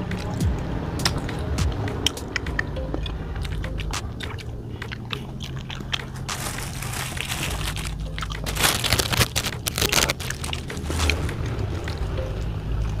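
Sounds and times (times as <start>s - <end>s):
wet mouth clicks: 1.0s - 6.4s
chewing: 1.0s - 12.1s
plastic bag crinkling: 6.0s - 11.2s.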